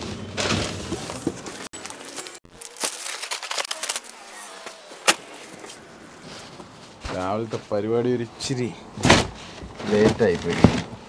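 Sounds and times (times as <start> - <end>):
packaging crinkling and rustling: 0.4 - 6.6.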